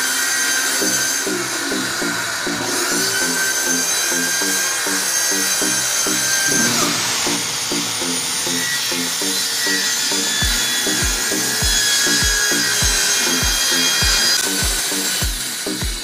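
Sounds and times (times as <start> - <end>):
circular saw cutting plywood: 0.0 - 16.0
background music with beat: 0.7 - 16.0
deep kick drum: 10.4 - 16.0.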